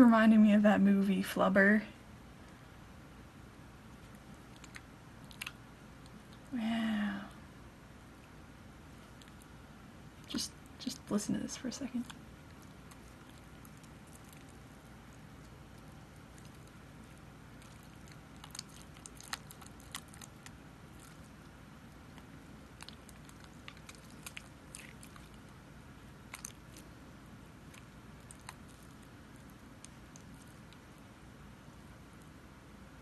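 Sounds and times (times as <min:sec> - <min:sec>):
slime squishing with clicks and pops: 0:04.1 - 0:06.4, 0:11.9 - 0:25.6, 0:27.6 - 0:31.1.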